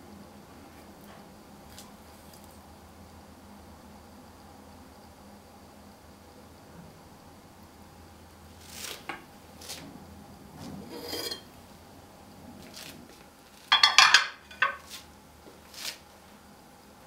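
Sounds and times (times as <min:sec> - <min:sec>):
spatula scraping batter in bowl: 0:10.8 - 0:11.5
glass baking dish knocking: 0:13.7 - 0:14.8.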